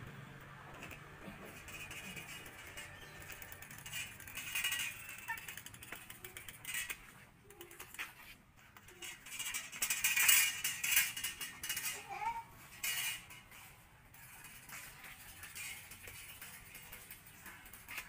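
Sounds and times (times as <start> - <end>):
bicycle rattling on concrete: 0.1 - 18.0.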